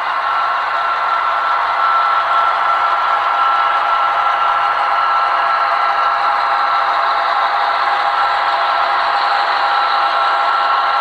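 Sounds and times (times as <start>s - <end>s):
model locomotive engine drone: 0.0s - 11.0s
model train rattle and clatter: 0.0s - 11.0s.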